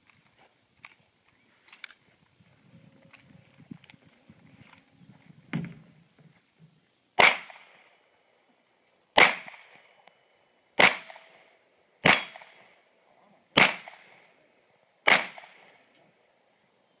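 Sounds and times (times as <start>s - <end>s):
gunshots with echo: 12.0s - 12.6s, 13.6s - 14.2s, 15.0s - 15.7s.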